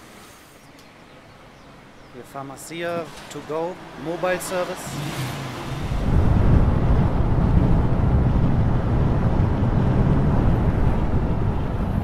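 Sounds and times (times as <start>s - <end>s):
car driving rumble: 1.6s - 12.0s
wind buffeting microphone: 4.9s - 12.0s.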